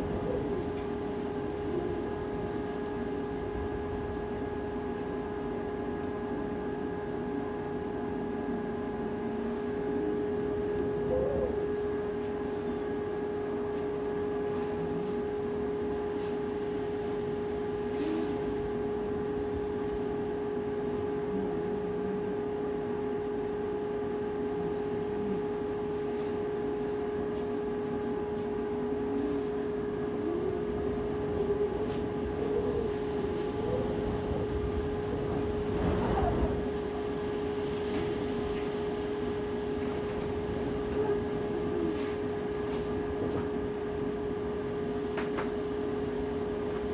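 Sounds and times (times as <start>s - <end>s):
steady droning hum: 0.0s - 46.9s
storm wind gusting: 33.6s - 37.0s.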